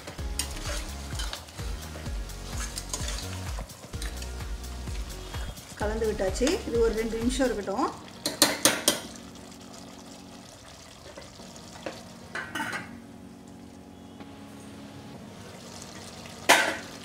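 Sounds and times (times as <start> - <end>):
ladle scraping a metal pot: 0.1 - 1.5, 2.4 - 4.2
steel lid clinking: 12.3 - 13.0.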